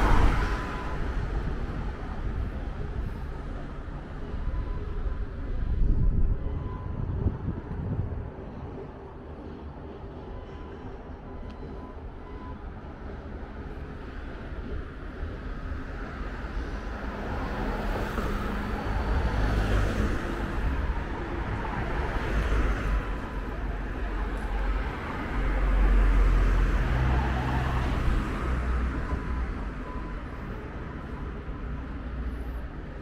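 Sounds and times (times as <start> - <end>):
cars passing: 0.0 - 33.0.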